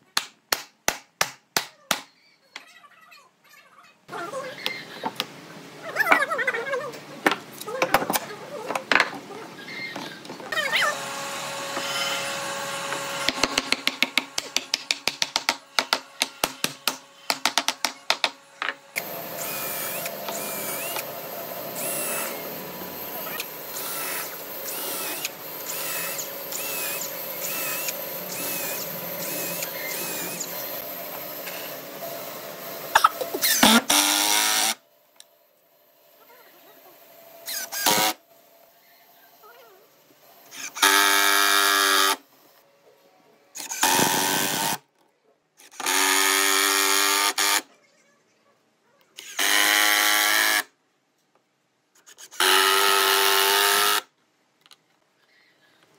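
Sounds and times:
drill whirring: 10.8 - 14.7, 18.1 - 32.8, 33.4 - 34.8, 37.4 - 38.2, 40.5 - 42.2, 43.6 - 44.8, 45.6 - 47.6, 49.2 - 50.7, 52.0 - 54.1.

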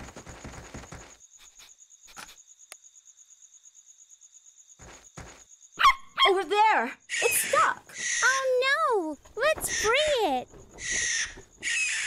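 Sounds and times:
cartoon running footsteps: 0.0 - 1.2, 4.8 - 5.5, 7.4 - 12.0
crickets chirping: 0.0 - 12.0.

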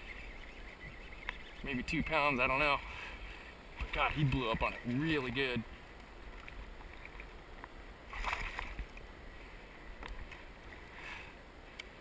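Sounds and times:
water splashing against kayak: 0.0 - 11.3
faint clicks: 1.2 - 1.4, 10.0 - 10.5, 11.7 - 12.0.

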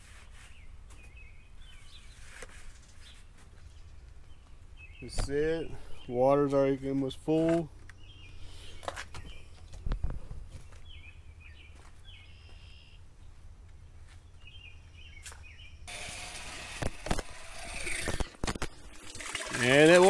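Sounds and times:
bird chirps: 10.6 - 15.9.

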